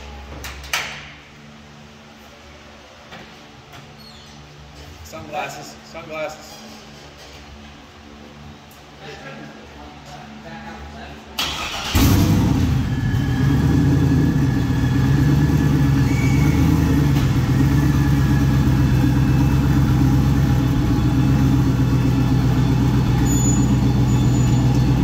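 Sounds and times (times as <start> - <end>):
truck engine starting and idling: 11.4 - 25.0.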